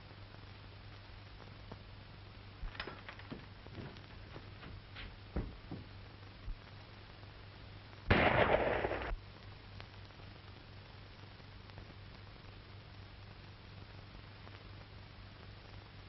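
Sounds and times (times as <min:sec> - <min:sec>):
faint knocks: 0:02.7 - 0:06.0
handgun shot: 0:08.1 - 0:09.2.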